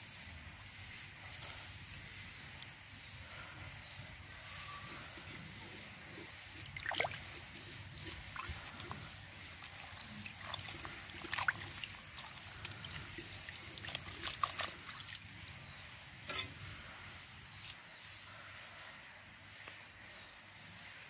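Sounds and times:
water splashing in a bowl: 6.5s - 15.6s.

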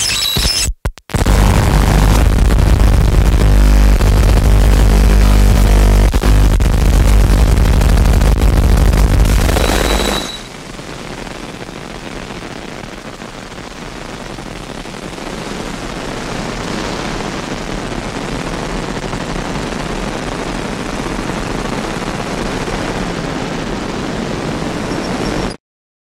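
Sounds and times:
electronic feedback hiss: 0.0s - 12.0s
low hum: 1.2s - 10.8s.

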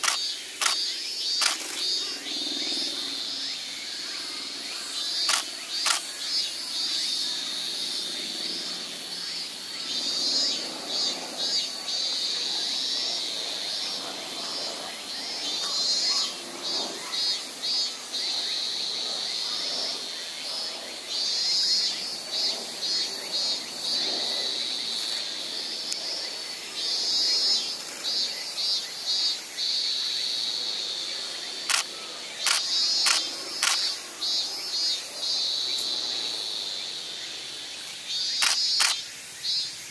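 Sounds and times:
camera shutter clicks: 0.0s - 1.9s, 5.2s - 6.1s, 31.7s - 33.9s, 38.4s - 39.0s
insects singing: 0.0s - 39.9s.

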